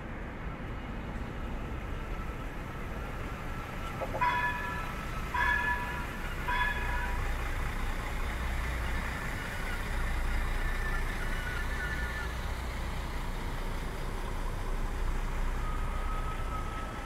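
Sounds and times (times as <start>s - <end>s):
train engine rumble: 0.0s - 17.0s
multi-tone train horn: 4.2s - 7.5s.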